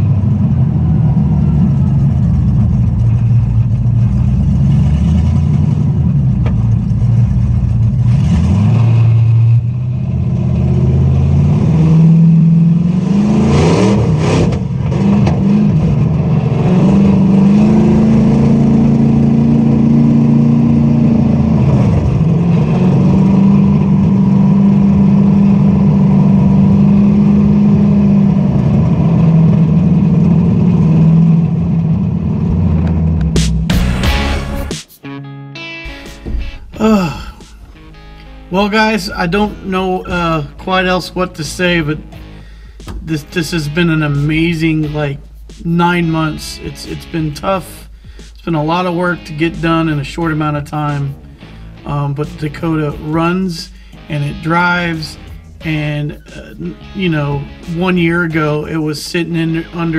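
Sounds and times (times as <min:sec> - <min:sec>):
car engine while driving: 0:00.0 - 0:34.7, 0:35.9 - 0:59.9.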